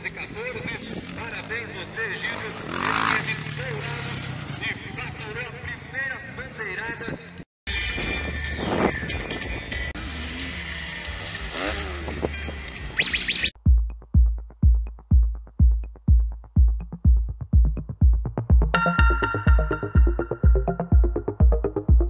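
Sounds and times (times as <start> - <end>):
dirt bike engine revving: 2.3 - 4.7, 10.0 - 12.2
heavy kick drum: 13.6 - 22.0
electronic music: 13.8 - 22.0
synth layer: 18.7 - 22.0.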